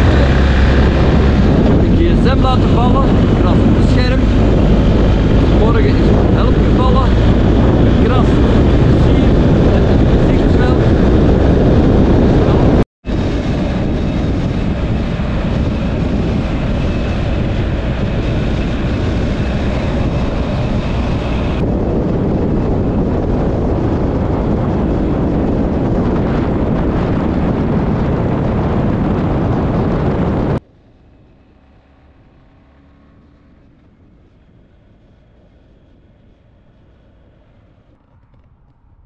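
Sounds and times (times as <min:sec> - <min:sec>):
motorcycle engine: 0:00.0 - 0:39.0
road noise: 0:00.0 - 0:39.0
wind rushing on microphone: 0:00.0 - 0:39.0.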